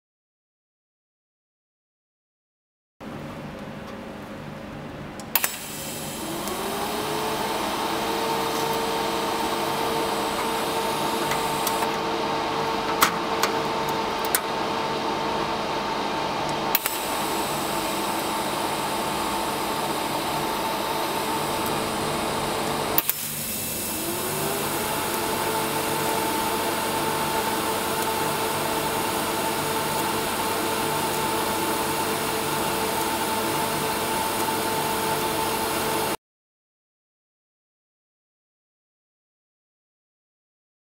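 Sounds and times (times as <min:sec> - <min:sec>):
welder hissing and humming: 0:05.4 - 0:36.2
sharp clicks: 0:10.3 - 0:12.0.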